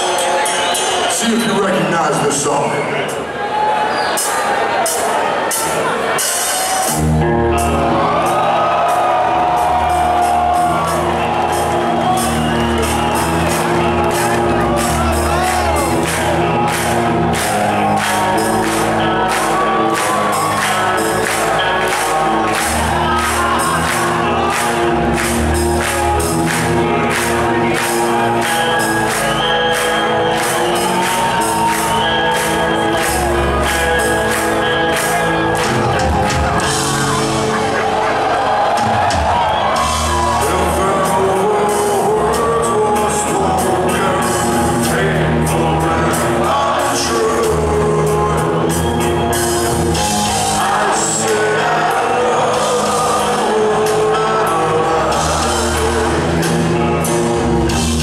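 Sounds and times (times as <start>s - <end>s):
live heavy metal band: 4.9s - 58.0s.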